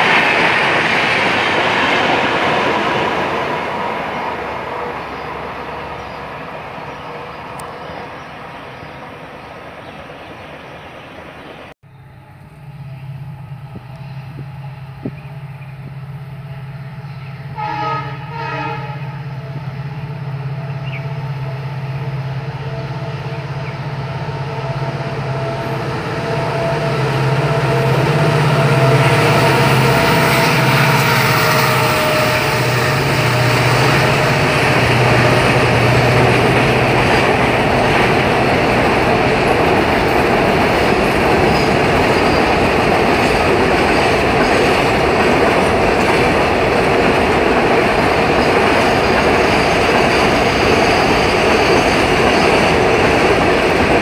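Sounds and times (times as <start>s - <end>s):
train rumbling on tracks: 0.0s - 54.0s
train horn: 17.2s - 19.7s, 24.4s - 36.5s.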